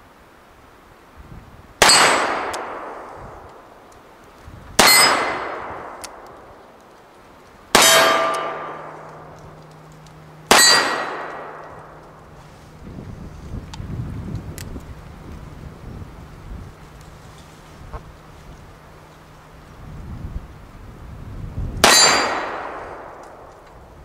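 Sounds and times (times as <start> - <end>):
steel target clanging: 4.8 - 5.6, 7.7 - 9.4, 10.5 - 12.0, 21.8 - 22.8.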